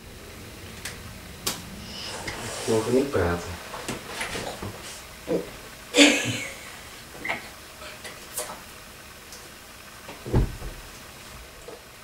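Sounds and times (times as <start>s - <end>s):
low thump: 10.3s - 10.8s.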